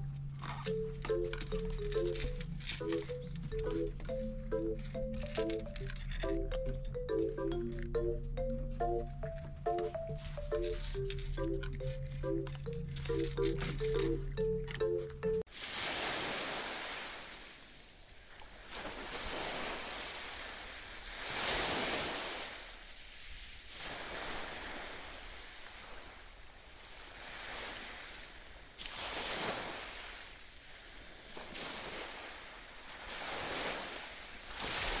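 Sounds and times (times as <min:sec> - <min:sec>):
waves washing ashore: 0:15.5 - 0:35.0.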